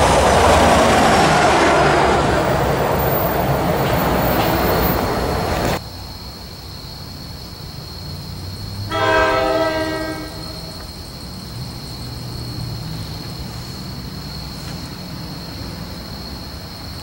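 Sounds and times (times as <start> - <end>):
train rumbling: 0.0 - 17.0
locomotive horn: 8.9 - 10.9.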